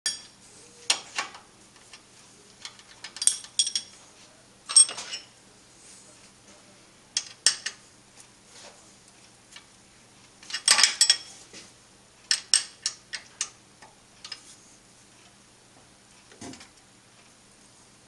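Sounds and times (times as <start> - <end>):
metal clinks of tools and parts: 2.6 - 4.0, 4.7 - 5.3, 10.5 - 11.3.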